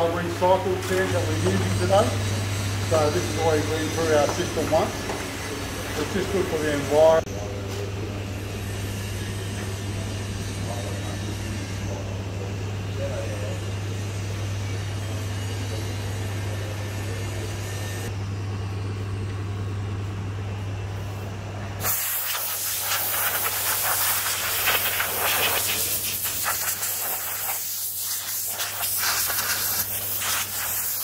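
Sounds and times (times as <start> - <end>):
low machine hum: 0.0 - 21.9
compressed air hissing: 21.8 - 31.0.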